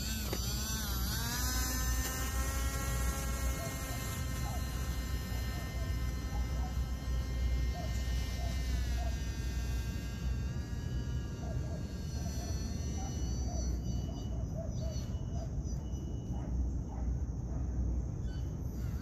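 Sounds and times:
electric motor whining: 0:00.0 - 0:16.1, 0:18.4 - 0:19.0
bird calls: 0:13.0 - 0:17.0.

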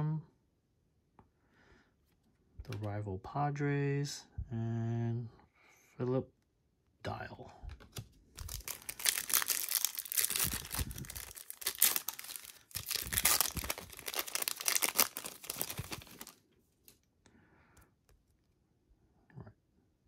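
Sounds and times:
foil wrapper tearing and crinkling: 0:08.4 - 0:16.4.

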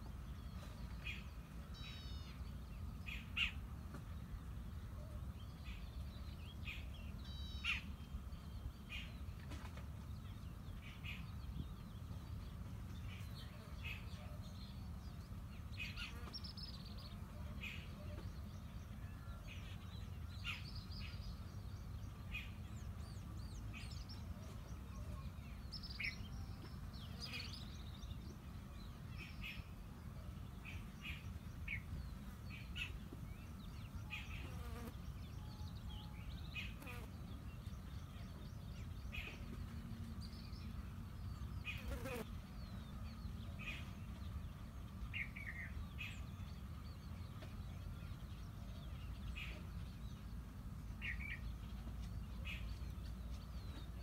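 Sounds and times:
low rumble of wind: 0:00.0 - 0:54.0
small birds chirping: 0:19.6 - 0:54.0.

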